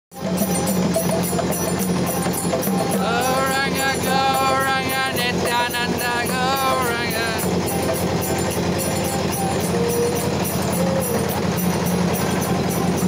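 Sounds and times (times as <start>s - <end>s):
accordion: 0.2s - 13.0s
hand cymbals clashing: 0.2s - 13.0s
hand drum beat: 0.2s - 13.0s
voices singing a chant: 2.6s - 11.3s.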